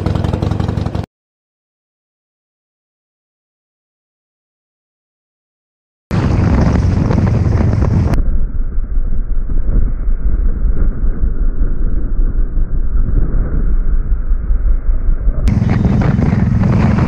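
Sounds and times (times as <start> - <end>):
motorcycle engine running: 0.0 - 1.1, 6.1 - 8.2, 15.2 - 17.0
wind buffeting microphone: 6.1 - 17.0.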